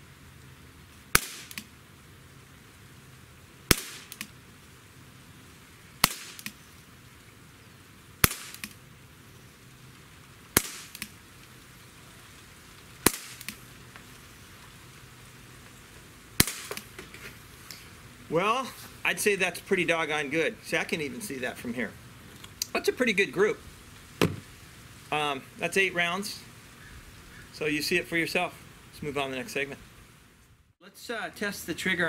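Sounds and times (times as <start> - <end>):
air pistol sharp cracks: 1.1 - 1.7, 3.7 - 4.4, 6.0 - 6.6, 8.2 - 8.8, 10.6 - 11.2, 13.0 - 13.6, 16.4 - 16.9.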